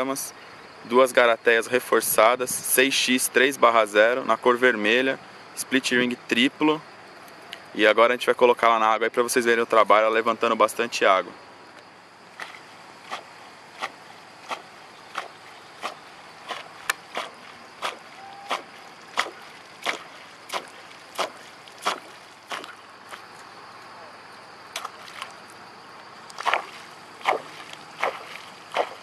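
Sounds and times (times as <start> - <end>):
lure splashing on water: 12.3 - 23.6, 24.7 - 25.6, 26.2 - 29.0.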